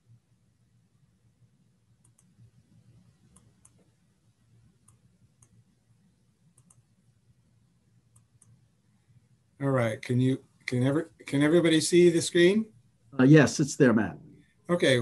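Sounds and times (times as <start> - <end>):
computer mouse clicks: 2.0 - 4.0, 4.8 - 5.6, 6.5 - 6.9, 8.1 - 8.6.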